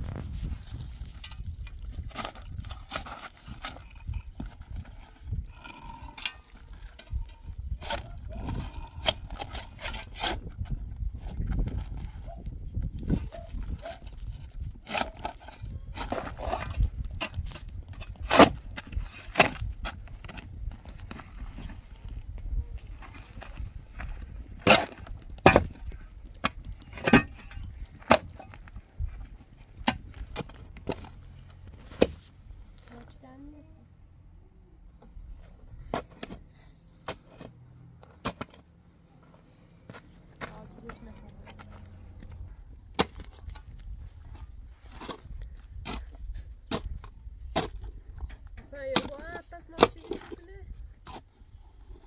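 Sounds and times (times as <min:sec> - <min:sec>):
low rumble: 0:00.0 - 0:01.8
shovel scraping stony soil: 0:00.0 - 0:12.4, 0:13.0 - 0:33.1, 0:35.3 - 0:38.7, 0:43.0 - 0:48.0
shovel striking stony soil: 0:13.3 - 0:21.4, 0:22.9 - 0:28.5, 0:35.8 - 0:38.7, 0:42.9 - 0:43.7, 0:44.9 - 0:47.9.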